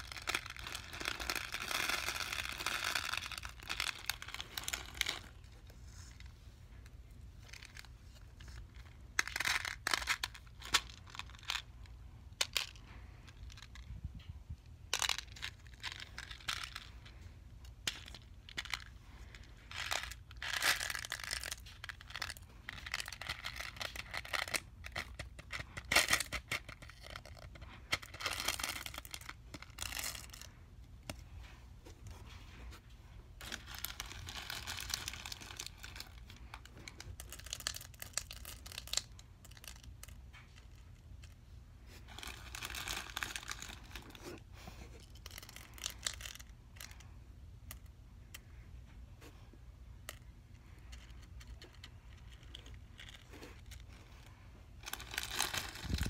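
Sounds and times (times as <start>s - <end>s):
slime squishing and crackling: 0.0s - 5.5s, 33.4s - 40.9s, 51.0s - 56.0s.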